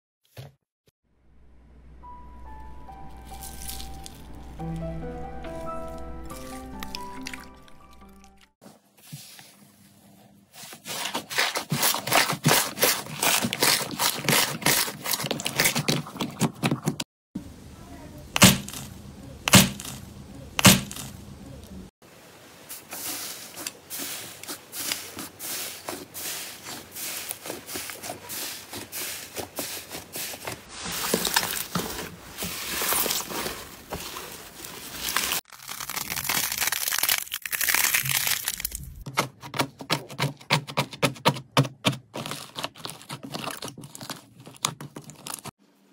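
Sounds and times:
slime crackling and popping: 35.0s - 39.0s.

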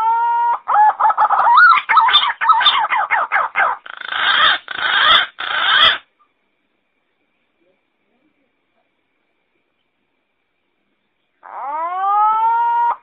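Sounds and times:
harsh noisy bird notes: 0.7s - 6.1s.

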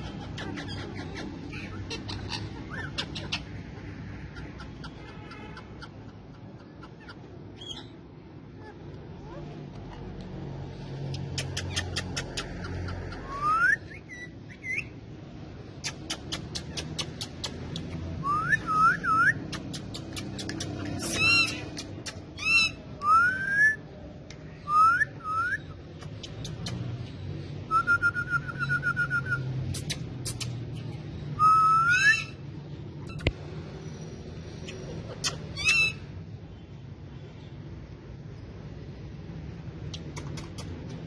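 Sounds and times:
parrot trill: 0.0s - 8.0s, 15.9s - 23.8s, 31.4s - 32.4s, 34.6s - 36.1s
parrots whistling and chattering: 0.0s - 8.0s, 11.1s - 15.0s, 15.7s - 23.9s, 24.6s - 26.8s, 27.6s - 33.3s, 34.5s - 36.2s.

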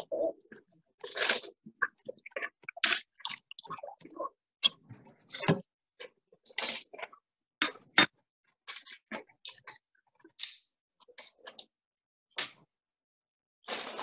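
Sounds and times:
paper bags rustling: 13.7s - 14.0s.

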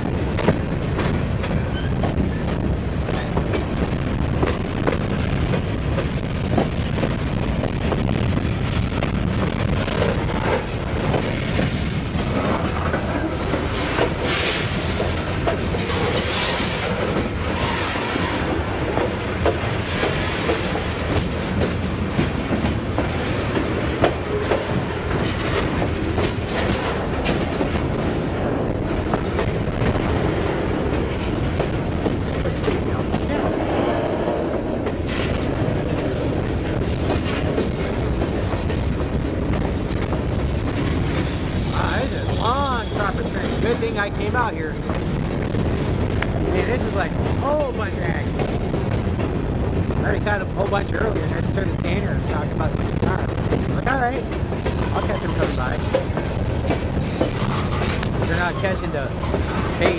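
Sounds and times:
freight train rumbling and rattling: 0.0s - 59.9s
wheels clicking over rail joints: 9.7s - 45.2s, 50.1s - 59.9s.

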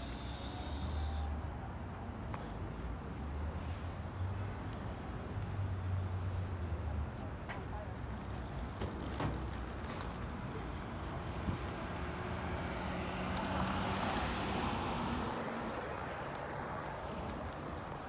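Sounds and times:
steady traffic noise: 0.0s - 18.0s
vehicle engine hum passing: 10.8s - 18.0s.

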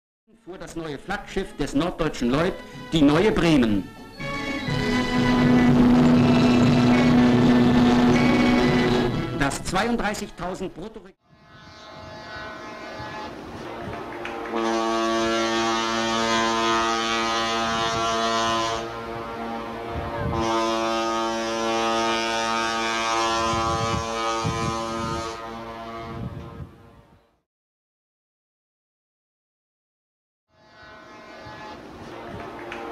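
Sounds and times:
ship's horn low blast: 3.8s - 9.5s, 11.2s - 27.3s, 30.5s - 32.9s.

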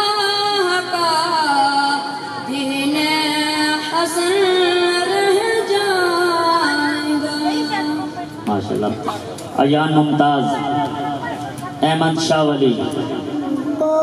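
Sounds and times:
boy singing into a microphone: 0.0s - 8.4s, 13.5s - 14.0s.

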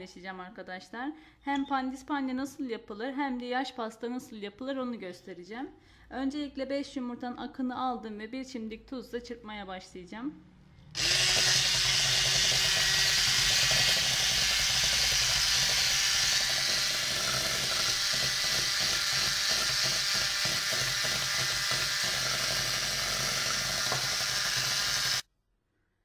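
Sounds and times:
electric hand mixer whisking: 11.0s - 25.2s.

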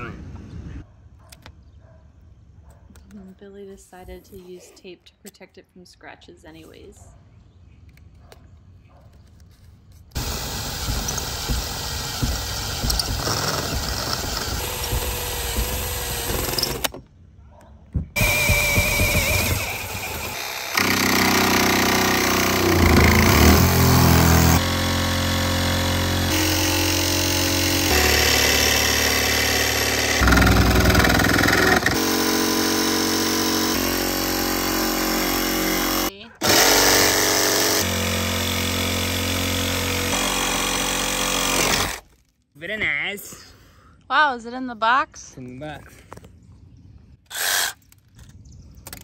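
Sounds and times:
jigsaw cutting sheet metal: 10.1s - 17.0s, 18.2s - 42.1s, 47.3s - 47.9s.

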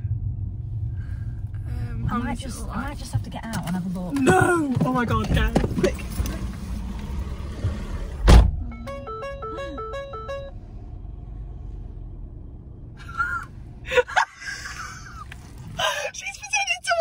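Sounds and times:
car idling: 0.0s - 17.0s
loud thump: 7.6s - 8.7s.

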